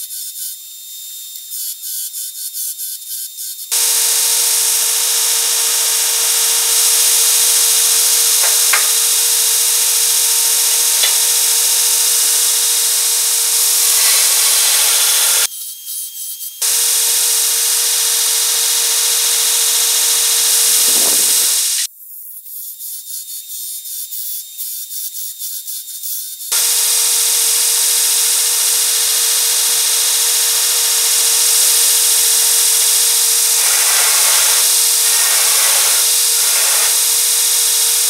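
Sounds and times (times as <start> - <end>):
belt grinder grinding metal: 3.5 - 21.9, 26.5 - 38.0.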